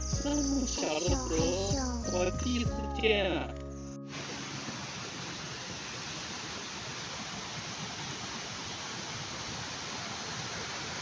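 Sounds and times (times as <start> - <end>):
mountain stream rushing: 4.1 - 11.0.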